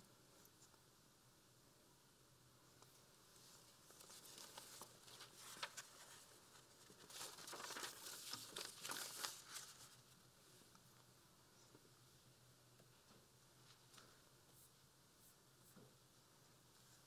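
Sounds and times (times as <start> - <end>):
rustling and crinkling handling noise: 2.8 - 10.8.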